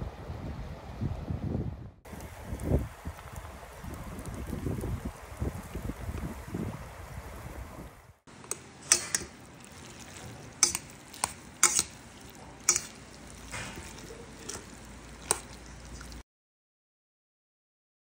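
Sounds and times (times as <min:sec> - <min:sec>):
wet noodles stirring: 0:08.3 - 0:16.2
chopsticks clinking against bowl: 0:08.5 - 0:09.4, 0:10.6 - 0:16.2.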